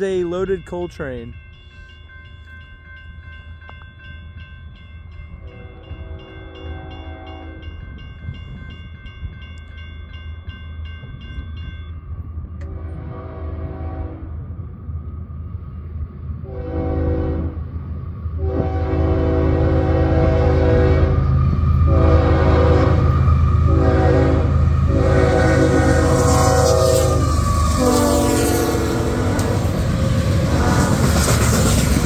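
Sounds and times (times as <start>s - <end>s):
crossing bell ringing: 0.0s - 12.9s
locomotive horn blasts: 5.4s - 7.8s, 12.6s - 14.4s, 16.4s - 17.6s, 18.4s - 21.2s, 21.9s - 29.6s
diesel locomotive rumble: 12.1s - 32.0s.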